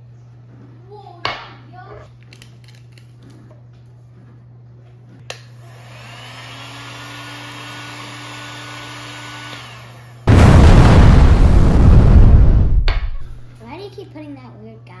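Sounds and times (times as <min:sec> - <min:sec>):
heat gun fan whirring: 0:05.2 - 0:10.2
loud rushing noise: 0:10.3 - 0:13.5.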